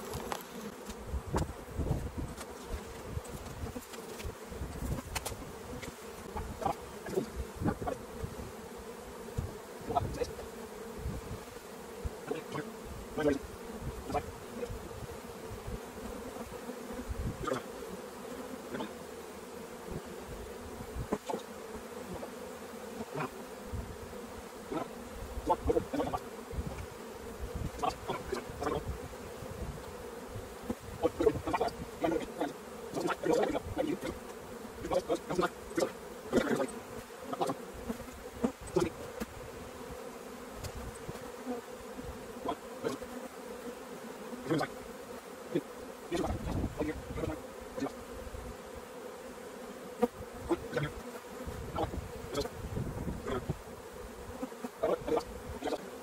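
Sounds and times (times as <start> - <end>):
knocks of wooden hive boxes: 0.0 - 8.6, 35.2 - 43.2
bees buzzing: 0.0 - 56.0.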